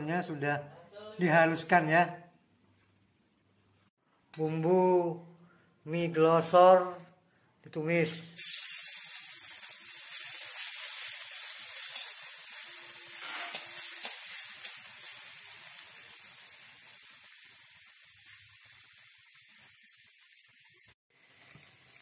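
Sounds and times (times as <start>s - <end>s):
paste sizzling in hot oil: 8.4s - 22.0s.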